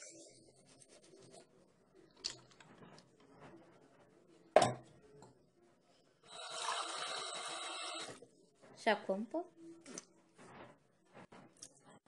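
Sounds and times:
tap water running: 0:06.3 - 0:08.2.

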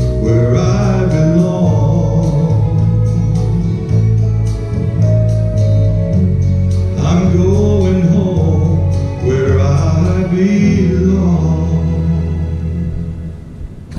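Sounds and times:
person singing: 0:00.0 - 0:04.7, 0:06.9 - 0:13.3
held instrumental chords: 0:00.0 - 0:13.9.

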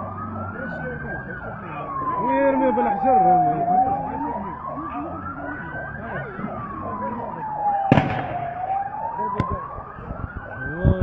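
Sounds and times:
siren wailing: 0:00.0 - 0:11.0
loud bang: 0:07.9 - 0:08.7.

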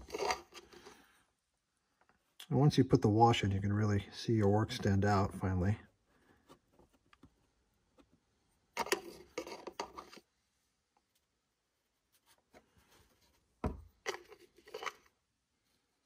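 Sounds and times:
rattly handling of bottle: 0:00.0 - 0:01.0, 0:08.8 - 0:10.3, 0:13.7 - 0:15.1.

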